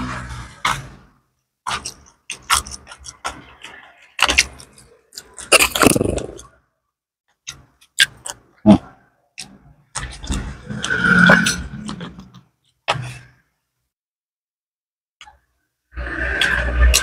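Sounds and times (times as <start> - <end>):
mouth clicks and smacks: 1.7 - 6.6, 7.5 - 10.5
person chewing: 1.7 - 6.6, 7.8 - 10.6.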